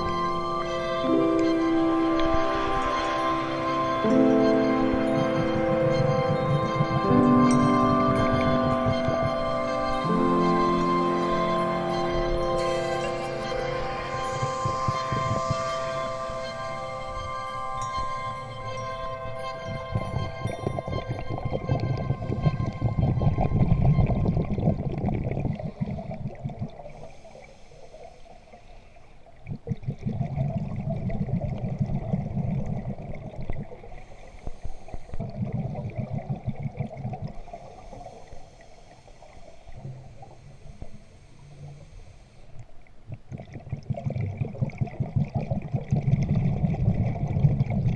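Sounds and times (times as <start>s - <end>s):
bubbling exhale underwater: 2.4s - 27.2s, 29.4s - 38.2s, 43.0s - 47.9s
regulator hiss: 34.0s - 35.2s.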